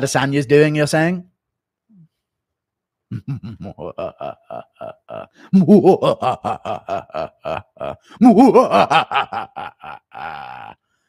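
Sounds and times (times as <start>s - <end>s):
man laughing hard: 3.1s - 10.8s.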